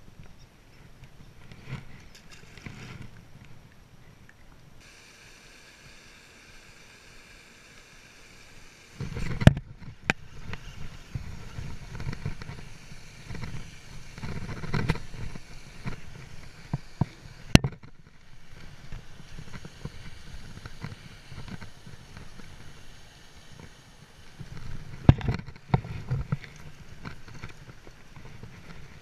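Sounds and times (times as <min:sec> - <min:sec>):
wind rumbling on microphone: 0:09.0 - 0:29.0.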